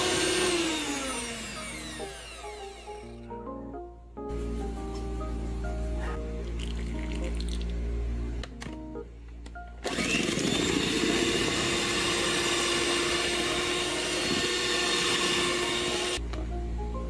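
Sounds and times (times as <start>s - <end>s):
electric hand mixer whirring: 0.0s - 3.3s, 9.8s - 16.2s.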